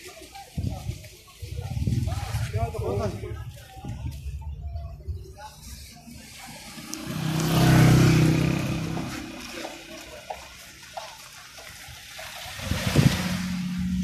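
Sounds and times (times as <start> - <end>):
road hiss: 5.4 - 14.0
passing vehicle engine and tyres: 5.8 - 14.0.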